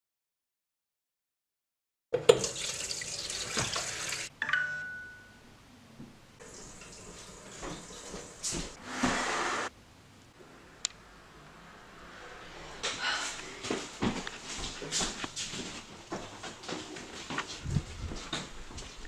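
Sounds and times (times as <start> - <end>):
tap water running: 2.2 - 4.3, 6.4 - 9.7
glass clinking: 4.4 - 5.4.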